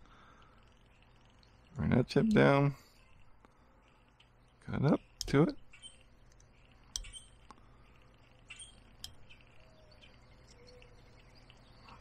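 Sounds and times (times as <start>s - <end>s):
faint bird chirps: 3.8s - 12.0s.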